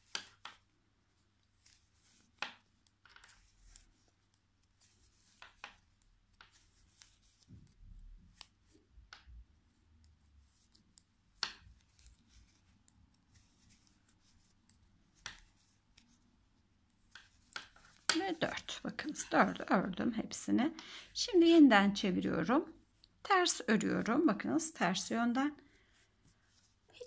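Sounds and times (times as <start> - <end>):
knitting needles clicking: 0.0 - 0.7, 1.5 - 16.2, 16.9 - 19.9
yarn rubbing: 0.0 - 20.5.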